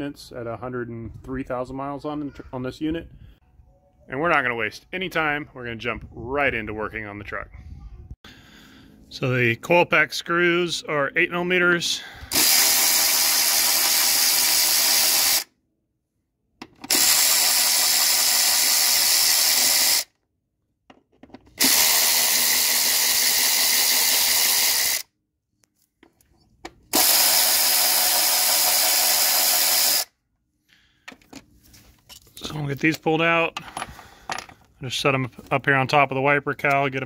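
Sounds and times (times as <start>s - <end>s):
cordless electric ratchet running: 12.3s - 15.5s, 16.8s - 20.1s, 21.6s - 25.1s, 26.9s - 30.1s.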